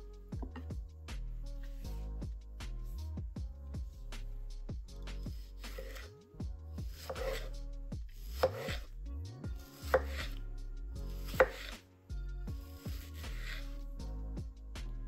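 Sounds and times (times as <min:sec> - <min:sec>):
blade knocking on wooden board: 0:00.4 - 0:00.8
knife slicing tomato: 0:05.0 - 0:06.1, 0:06.7 - 0:08.9, 0:09.6 - 0:11.8, 0:12.6 - 0:13.8.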